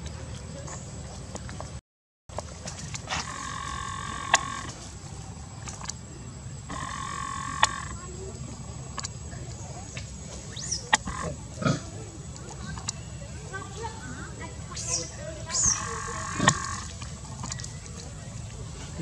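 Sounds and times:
baby monkey squealing: 14.7 - 16.9.

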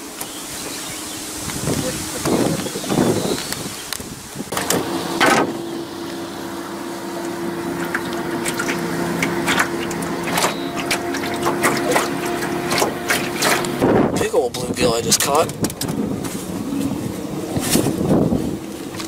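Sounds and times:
small boat motor humming: 0.0 - 19.0
water slapping against hull: 0.0 - 19.0.

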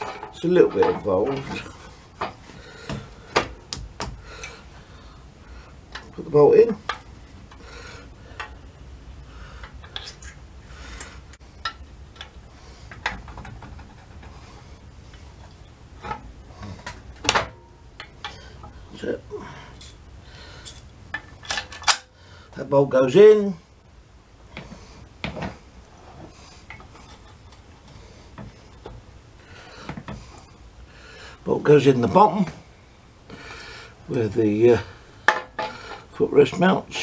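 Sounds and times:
metal bolt and washers clinking: 0.0 - 2.3, 19.6 - 22.1
low steady hum: 0.0 - 37.0.

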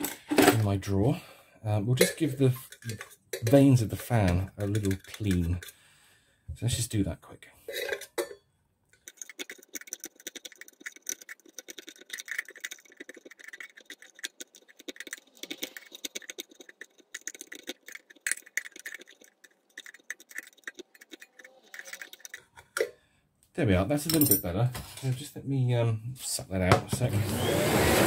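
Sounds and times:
screwdriver scraping fan vanes: 2.6 - 5.8.

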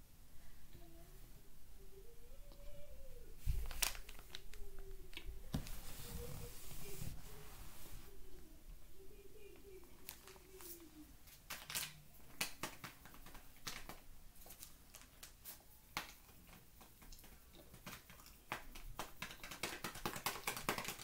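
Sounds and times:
paper bag crinkling: 3.4 - 4.6.

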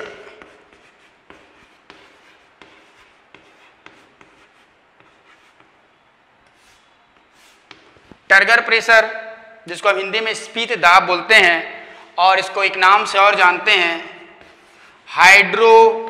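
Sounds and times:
chalk tapping and scratching: 0.0 - 5.8, 6.5 - 8.3, 14.2 - 15.1.

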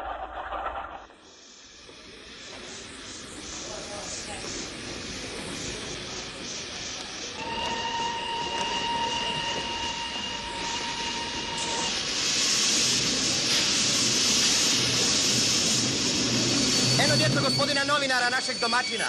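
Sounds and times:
loud steam hiss: 1.1 - 19.0
thin high tone: 16.3 - 19.0.

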